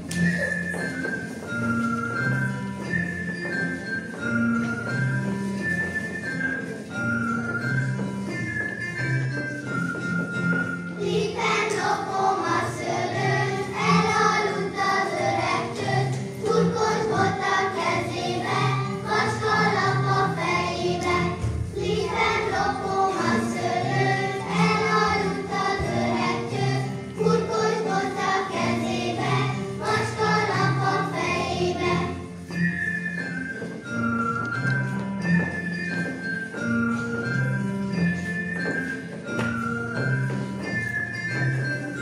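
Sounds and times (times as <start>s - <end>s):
choir singing: 11.0s - 32.2s.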